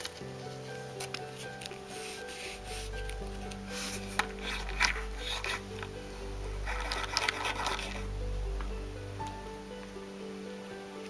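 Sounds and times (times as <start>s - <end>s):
hands rustling a plastic toy: 0.0s - 5.9s, 6.6s - 8.0s
background music: 0.0s - 11.0s.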